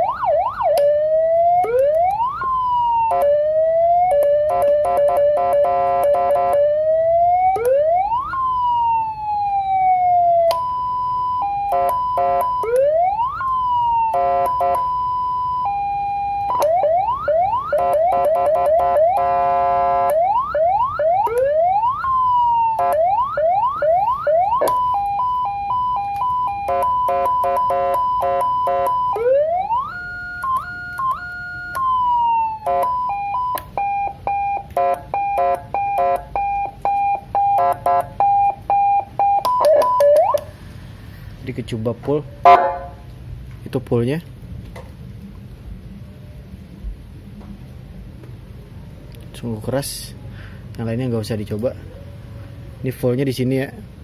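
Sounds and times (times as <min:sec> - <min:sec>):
electronic siren tones: 0:00.0 - 0:40.5.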